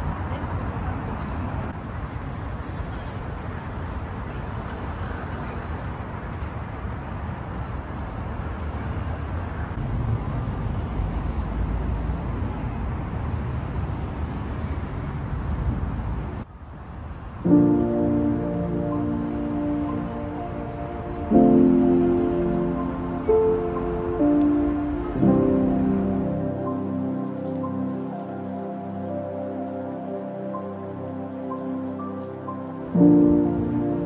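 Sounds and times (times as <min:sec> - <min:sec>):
road traffic rumble: 0:00.0 - 0:34.0
music: 0:17.4 - 0:34.0.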